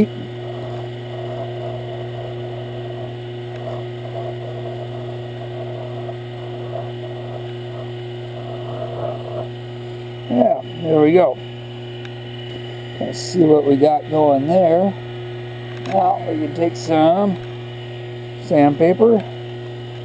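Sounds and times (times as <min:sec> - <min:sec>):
lathe motor hum: 0:00.0 - 0:20.0.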